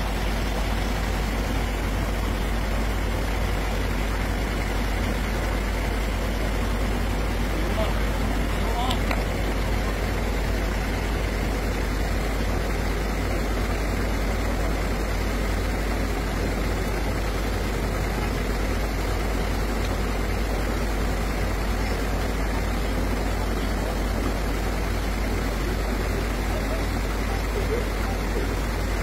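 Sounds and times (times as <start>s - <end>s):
heavy vehicle engine idling: 0.0s - 29.0s.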